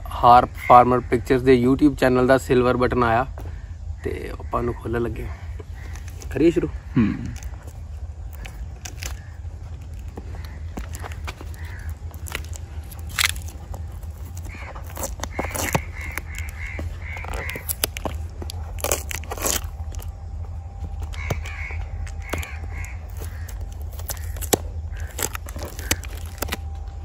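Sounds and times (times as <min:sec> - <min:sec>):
crows cawing: 0:03.4 - 0:26.9
packing tape peeling off cardboard: 0:07.3 - 0:20.2, 0:21.0 - 0:27.0.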